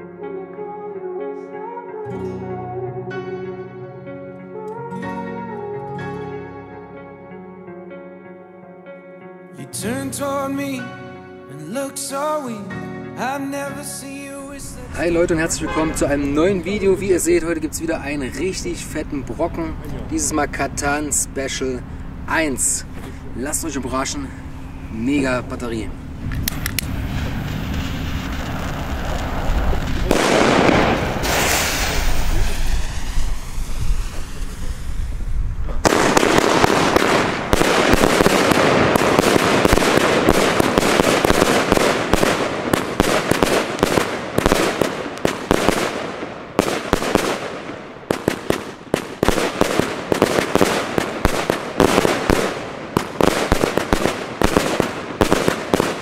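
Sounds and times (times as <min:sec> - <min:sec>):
rumbling with hiss: 0:14.5 - 0:44.4
shells bursting with crackle: 0:26.2 - 0:34.4, 0:35.8 - 0:56.0
firework launch thumps: 0:26.2 - 0:35.0.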